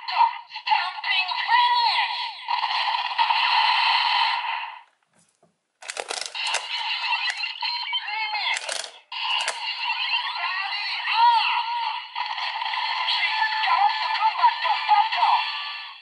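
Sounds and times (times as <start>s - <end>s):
plastic clicks: 4.9s - 7.5s, 8.5s - 9.6s
toy electronic sound effects: 5.8s - 11.7s.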